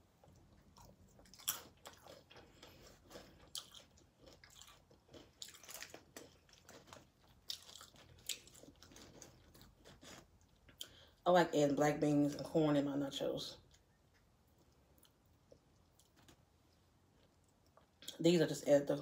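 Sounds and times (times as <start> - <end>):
chips crunching in mouth: 0.8 - 10.9.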